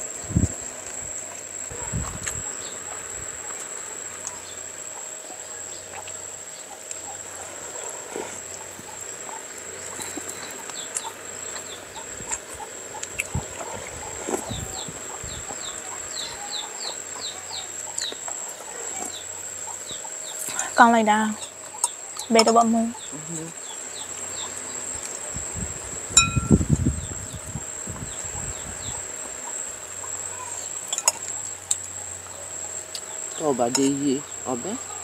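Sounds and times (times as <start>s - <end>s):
birds chirping: 0.0s - 25.3s, 26.2s - 35.0s
steady high-pitched whine: 0.0s - 35.0s.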